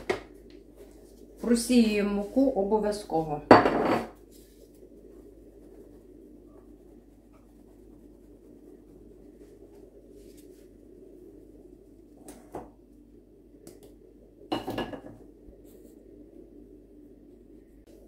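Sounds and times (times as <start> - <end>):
sieve shaking flour: 0.0 - 3.4
low steady hum: 0.0 - 18.0
kitchenware clattering: 3.5 - 4.2.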